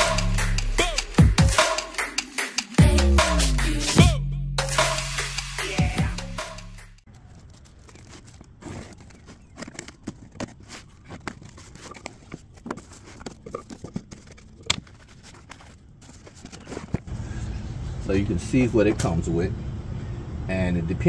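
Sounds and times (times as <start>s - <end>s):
parts clicking and scraping: 7.0s - 17.1s
plastic wrapping crinkling: 7.0s - 17.1s
cardboard box flaps rustling: 7.1s - 17.1s.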